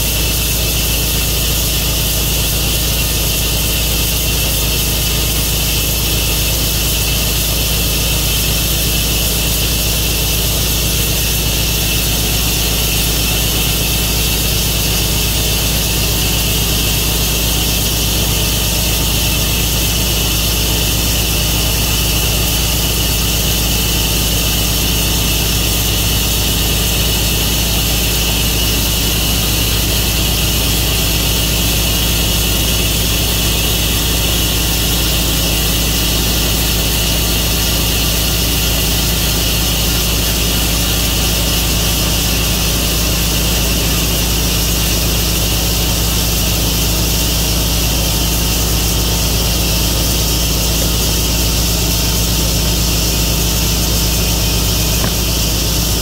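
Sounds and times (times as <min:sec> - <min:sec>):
engine drone: 0:00.0 - 0:56.0
sawmill cutting a log: 0:00.0 - 0:56.0.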